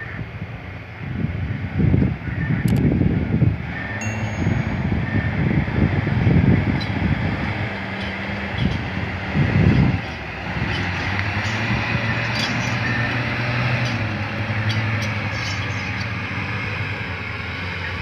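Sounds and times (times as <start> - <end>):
diesel truck engine running: 0.0 - 18.0.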